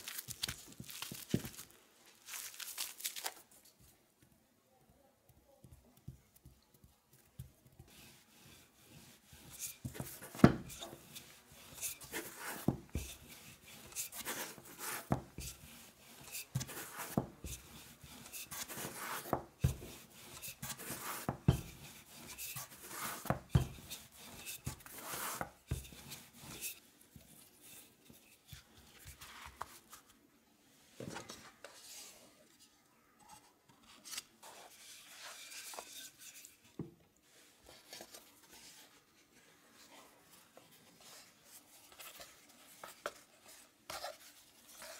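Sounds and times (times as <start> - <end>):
rolling pin rolling dough: 5.3 - 30.1, 37.6 - 44.9.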